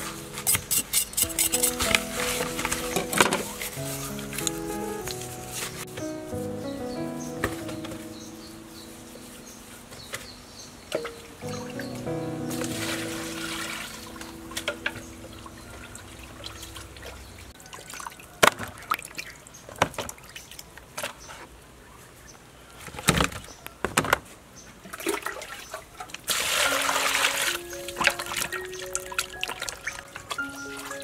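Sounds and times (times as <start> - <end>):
background music: 0.0 - 17.6, 26.7 - 31.0
water splashing in plastic basin: 24.8 - 30.9.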